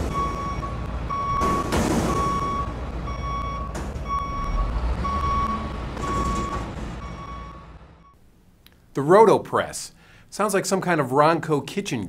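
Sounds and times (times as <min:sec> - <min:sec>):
truck reversing alarm beeping: 0:00.0 - 0:08.2.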